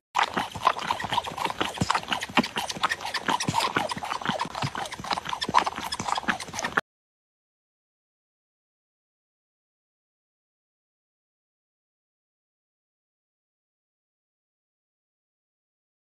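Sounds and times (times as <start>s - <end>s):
cat sucking on bottle nipple: 0.2s - 6.8s.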